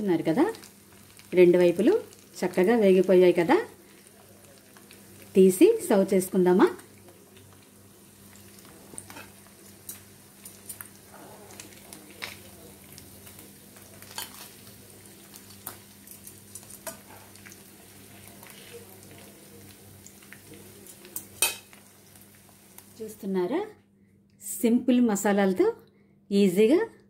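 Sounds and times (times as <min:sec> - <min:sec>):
fish sizzling in hot oil: 0:00.0 - 0:23.2.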